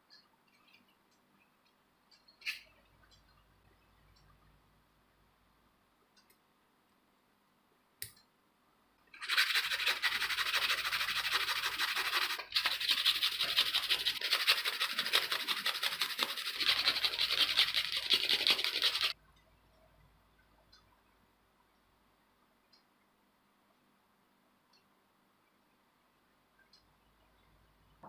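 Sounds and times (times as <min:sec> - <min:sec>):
sanding sponge scratching plastic: 0:09.2 - 0:19.2.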